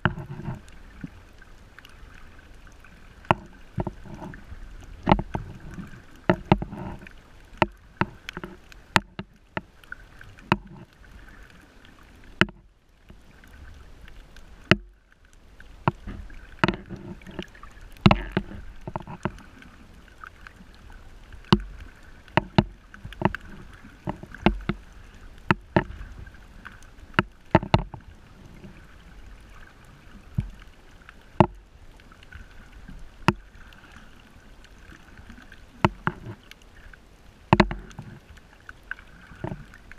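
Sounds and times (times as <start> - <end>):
underwater clicks and pops: 0.0 - 1.1, 3.2 - 9.7, 10.4 - 11.0, 12.3 - 13.2, 14.6 - 15.0, 15.8 - 19.7, 21.4 - 24.8, 25.4 - 26.1, 27.1 - 28.0, 31.4 - 31.6, 33.2 - 33.5, 35.3 - 36.6, 37.5 - 38.2, 39.4 - 39.8
low rumble of moving water: 0.0 - 39.9.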